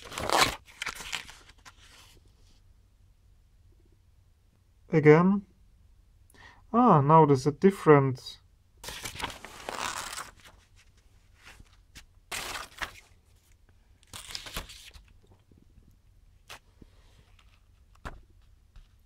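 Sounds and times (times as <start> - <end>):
paper pages turning: 0.0 - 2.2, 8.8 - 15.4, 16.4 - 19.0.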